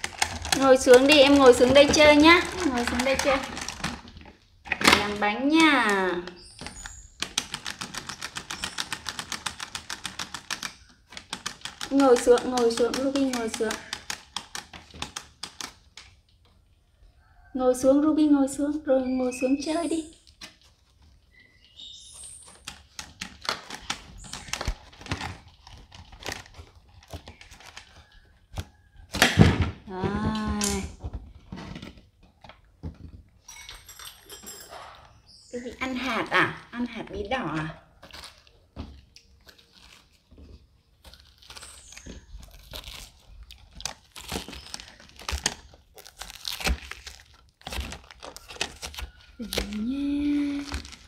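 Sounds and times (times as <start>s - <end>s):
knife crunching through pumpkin rind: 38.0s - 50.0s.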